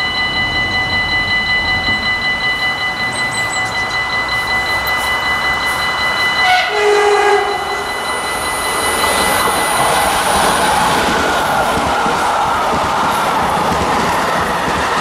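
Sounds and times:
high whine: 0.0s - 14.6s
steady high tone: 0.0s - 15.0s
train rumbling past: 0.0s - 15.0s
train horn blast: 6.4s - 8.0s.

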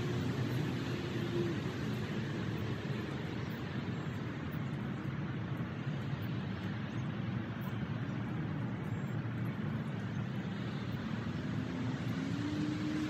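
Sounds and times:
distant road traffic hum: 0.0s - 13.0s.

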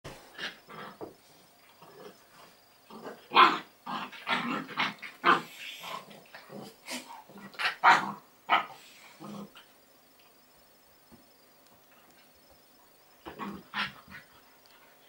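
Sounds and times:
dogs growling while play-fighting: 0.2s - 9.7s, 13.2s - 14.5s.

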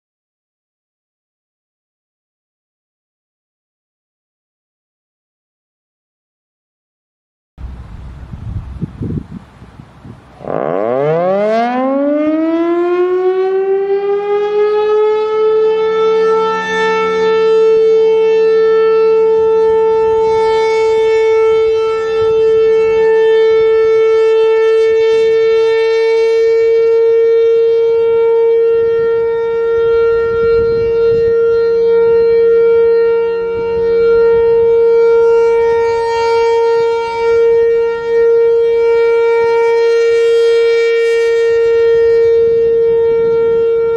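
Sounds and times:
warning siren winding up: 10.4s - 43.9s.

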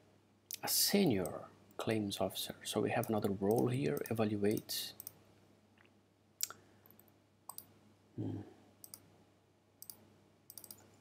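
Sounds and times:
computer mouse clicks: 6.4s - 7.7s, 8.8s - 9.1s, 9.8s - 11.0s.

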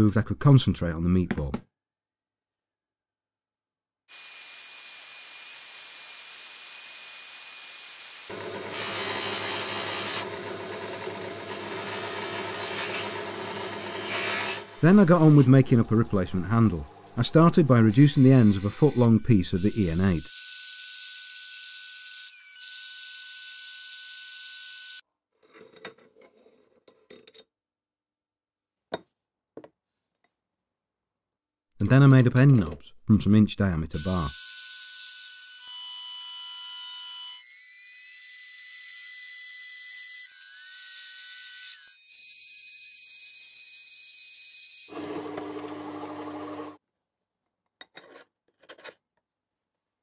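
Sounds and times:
lathe cutting steel: 4.2s - 15.6s, 44.8s - 46.8s
metal lathe drilling whine: 8.3s - 14.8s.

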